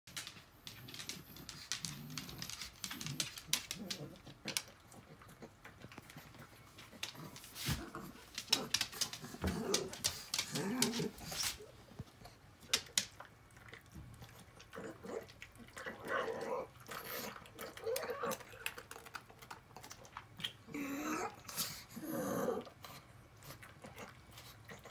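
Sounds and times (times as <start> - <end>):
dog grunting: 7.0 - 11.4
dog chewing wetly: 12.2 - 20.8.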